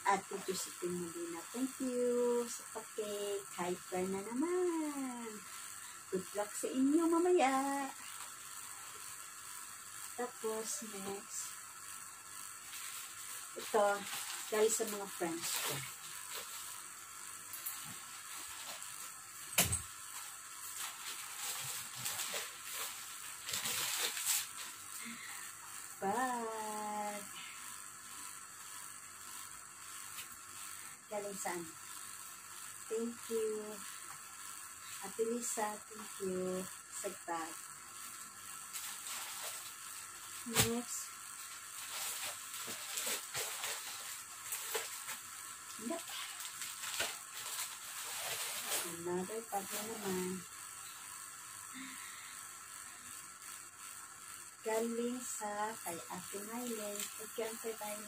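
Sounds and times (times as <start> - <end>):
steady hiss: 0.0 - 58.0
plastic bag crinkling: 12.6 - 16.7, 20.1 - 25.2, 38.7 - 39.8, 40.4 - 50.1
gift packaging rustling: 12.7 - 16.7, 20.1 - 25.2, 38.7 - 39.8, 40.4 - 50.1.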